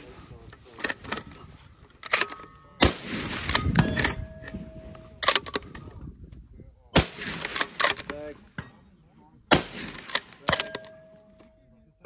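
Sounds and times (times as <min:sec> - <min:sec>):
rifle bolt clicks and knocks: 0:00.5 - 0:02.6, 0:03.4 - 0:06.1, 0:07.4 - 0:08.8, 0:09.9 - 0:11.6.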